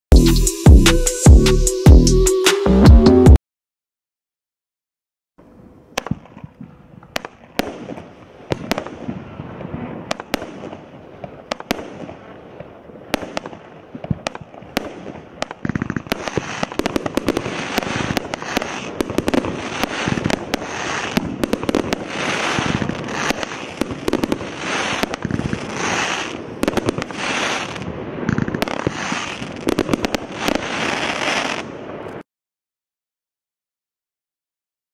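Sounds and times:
firework crackling: 5.6s - 32.2s
firework shots and bursts: 5.9s - 32.2s.

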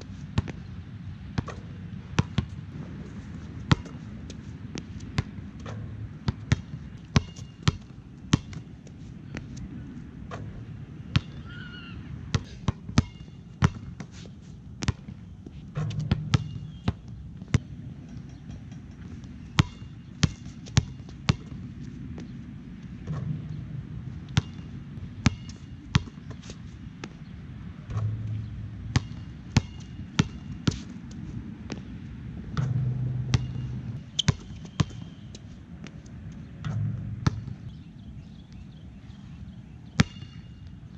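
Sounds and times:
low background hum: 0.0s - 40.9s
basketball bouncing: 1.4s - 2.6s, 3.7s - 4.0s, 4.7s - 8.7s, 12.3s - 14.0s, 14.8s - 15.2s, 15.8s - 22.3s, 24.3s - 26.4s, 27.9s - 30.8s, 32.5s - 35.4s, 36.6s - 37.8s, 40.0s - 40.4s.

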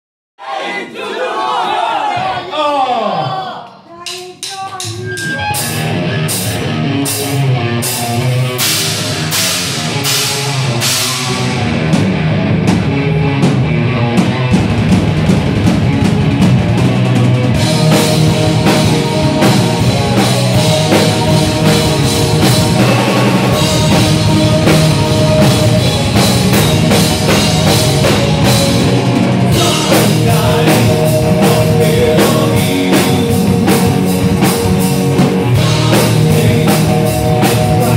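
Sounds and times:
drum and cymbal hits: 4.4s - 12.9s, 14.2s - 37.9s
heavy metal band playing: 4.5s - 37.9s.

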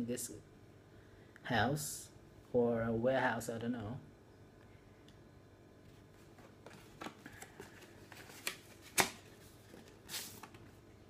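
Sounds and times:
cards and paper rustling: 5.9s - 10.8s.

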